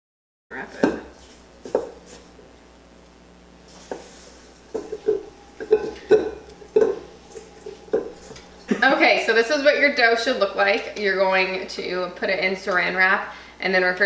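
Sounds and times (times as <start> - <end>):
spoon scraping metal bowl: 3.9 - 8.5.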